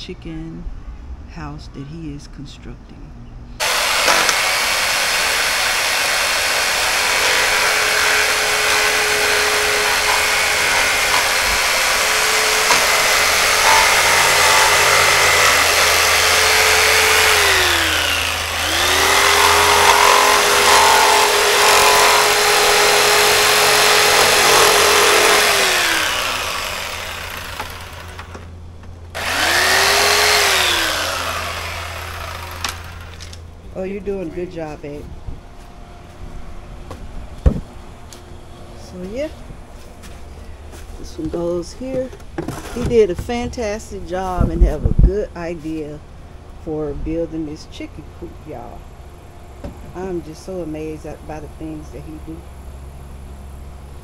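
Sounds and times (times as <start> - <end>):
jigsaw cutting plastic: 3.6 - 28.4, 29.2 - 33.4.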